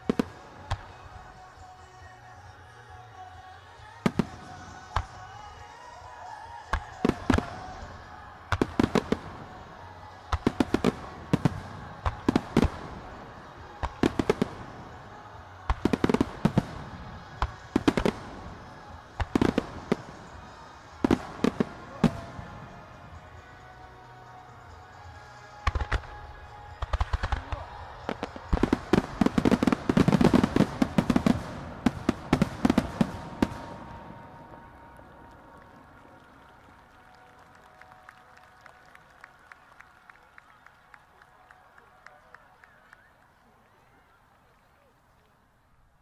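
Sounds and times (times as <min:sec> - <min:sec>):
music: 0:00.0 - 0:43.8.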